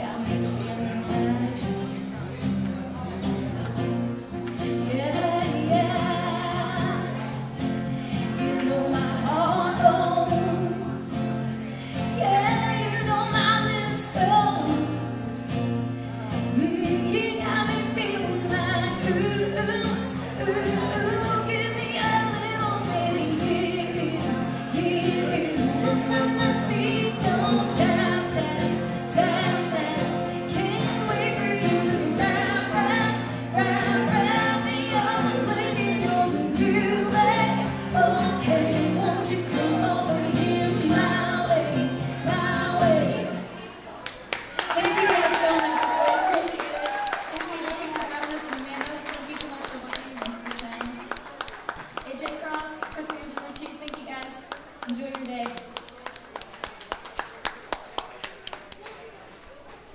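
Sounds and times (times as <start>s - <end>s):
woman singing: 0.0s - 2.0s, 4.7s - 7.4s, 8.0s - 15.2s, 16.3s - 43.5s, 44.7s - 51.1s
strummed acoustic guitars: 0.0s - 43.6s.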